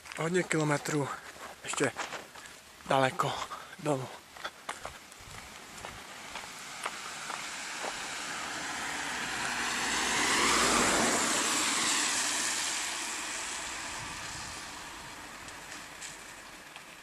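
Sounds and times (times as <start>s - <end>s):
car driving past: 5.4s - 16.5s.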